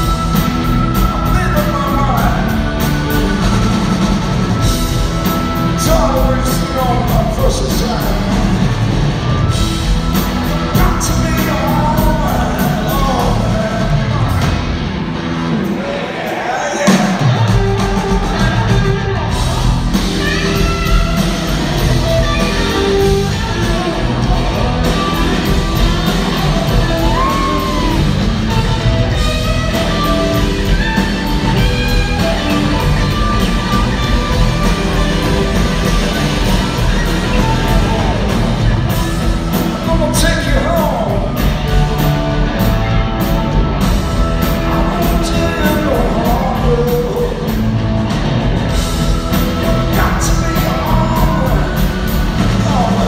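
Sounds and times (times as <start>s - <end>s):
electric guitars: 0.0s - 53.0s
drumbeat: 16.8s - 53.0s
person singing: 22.0s - 28.8s, 32.2s - 38.7s, 44.5s - 47.7s, 49.8s - 53.0s.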